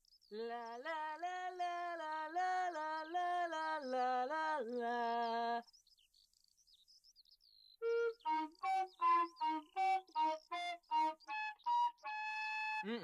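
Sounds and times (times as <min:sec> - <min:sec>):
person humming a tune: 0:12.6 - 0:13.0.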